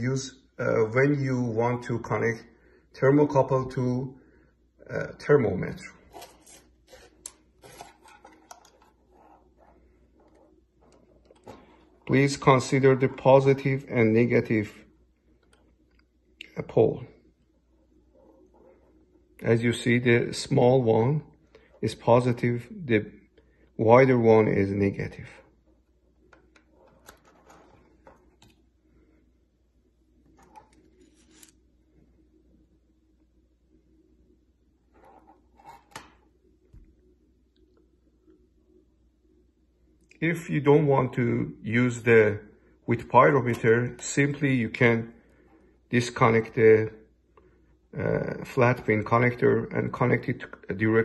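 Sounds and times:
low room hum: 0.0s - 51.0s
light scraping: 6.0s - 12.2s, 26.7s - 28.2s.

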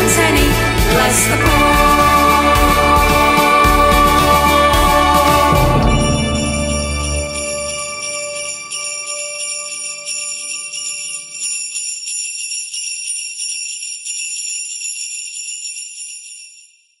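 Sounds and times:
sustained instrumental notes: 0.0s - 10.2s
sleigh bells ringing: 0.0s - 17.0s.

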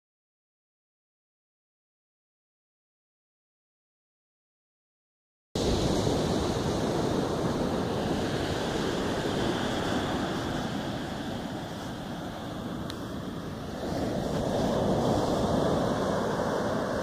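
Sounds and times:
sea surf on a beach: 5.6s - 17.0s
wind rumbling on microphone: 5.6s - 17.0s.

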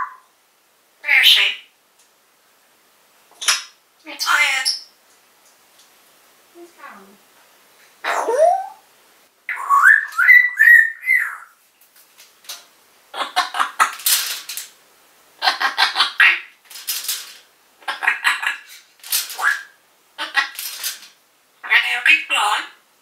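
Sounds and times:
parrot whistling: 8.1s - 8.8s, 9.5s - 11.5s
parrot raspy chatter: 13.2s - 13.9s, 15.4s - 16.5s, 17.8s - 18.7s, 19.4s - 20.6s, 21.6s - 22.8s.

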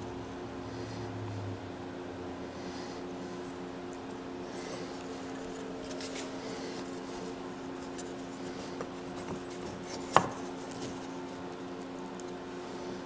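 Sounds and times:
steady low hum: 0.0s - 13.0s
wooden blocks rubbing together: 5.9s - 11.1s.

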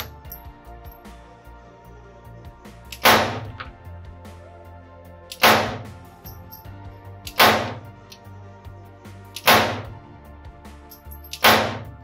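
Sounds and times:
pistol shots with echo: 3.0s - 3.5s, 5.3s - 5.9s, 7.3s - 7.9s, 9.4s - 9.9s, 11.4s - 11.9s.

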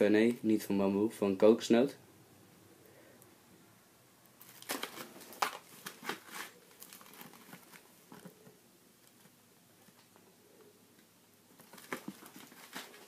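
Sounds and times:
plastic wrap crinkling: 4.4s - 8.3s, 11.6s - 13.0s.

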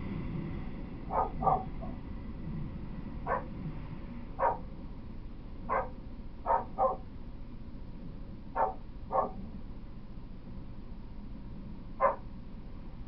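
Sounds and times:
low steady rumble: 0.0s - 13.0s
dog barking: 1.1s - 2.0s, 3.2s - 3.5s, 4.4s - 4.7s, 5.7s - 7.1s, 8.6s - 9.5s, 12.0s - 12.3s.

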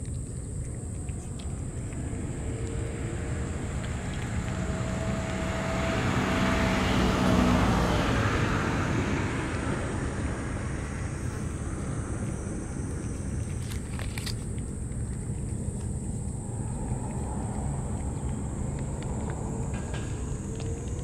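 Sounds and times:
vehicle engine passing by: 1.0s - 14.4s, 15.7s - 21.0s
high-pitched whine: 1.5s - 14.4s.

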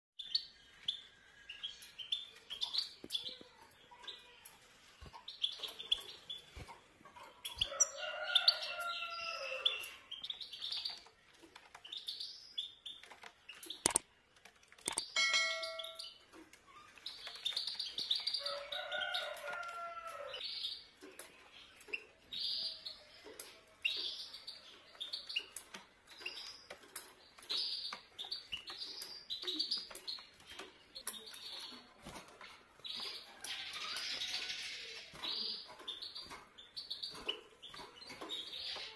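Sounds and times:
small birds chirping and twittering: 0.2s - 38.9s
sharp clicks: 13.0s - 15.2s.

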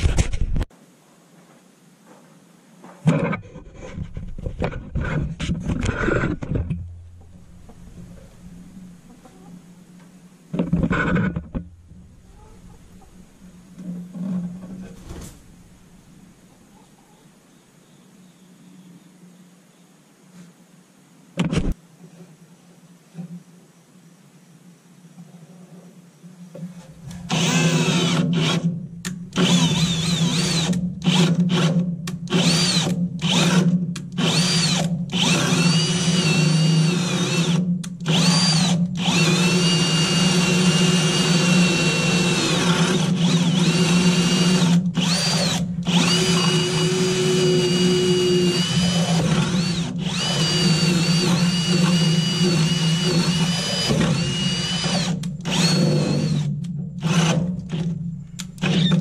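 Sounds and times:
drill boring through wood: 27.3s - 28.7s, 29.3s - 58.0s, 58.6s - 59.0s.

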